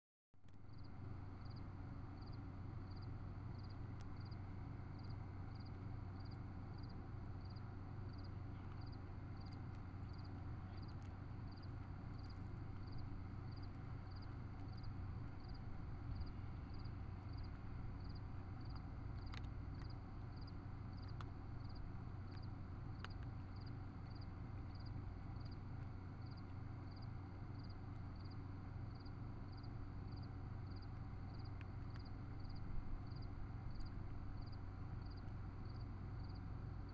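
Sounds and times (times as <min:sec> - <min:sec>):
cat crunching dry kibble: 0:07.6 - 0:26.8, 0:29.9 - 0:36.0.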